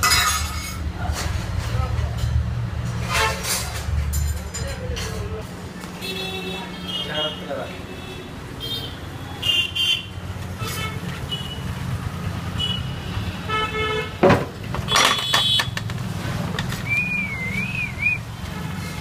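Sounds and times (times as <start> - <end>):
vehicle horn toots: 14.9 - 15.8.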